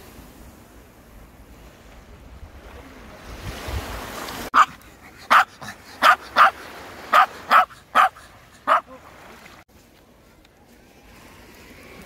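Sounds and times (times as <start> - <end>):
small waves washing on shore: 0.0 - 12.0
small dog barking: 4.6 - 9.0.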